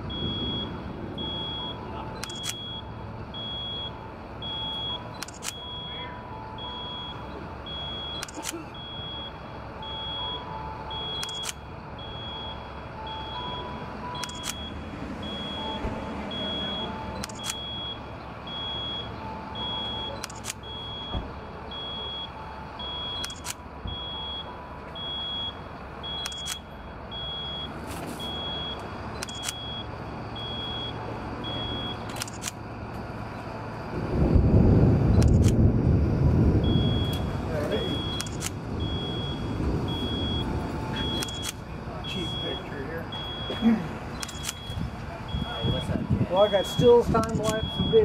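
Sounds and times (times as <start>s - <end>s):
electronic warning beep: 0.0s - 34.0s, 36.6s - 48.0s
diesel engine running low: 0.0s - 48.0s
camera shutter clicks: 2.2s - 2.6s, 5.2s - 5.6s, 8.2s - 8.6s, 11.2s - 11.6s, 14.2s - 14.6s, 17.2s - 17.6s, 23.2s - 23.6s, 26.2s - 26.7s, 29.2s - 29.7s, 32.0s - 32.6s, 38.2s - 38.6s, 41.1s - 41.6s, 44.2s - 44.8s.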